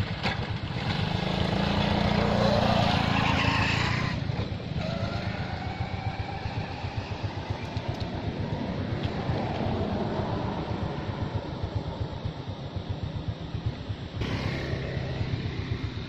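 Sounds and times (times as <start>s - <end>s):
vehicle passing: 0.8s - 12.4s
steady low rumble: 5.4s - 16.0s.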